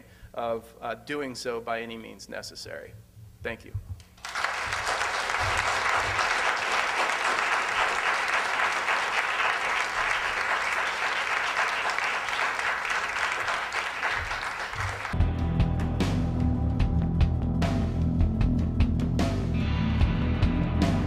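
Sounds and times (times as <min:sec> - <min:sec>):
audience applauding: 0:04.2 - 0:15.2.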